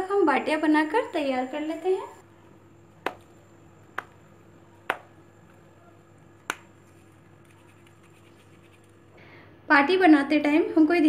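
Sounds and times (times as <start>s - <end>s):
faint steady hum: 0.0s - 11.0s
sharp clicks of dough on steel bowl: 3.0s - 3.3s, 4.0s - 4.2s, 4.8s - 5.2s, 6.4s - 6.7s.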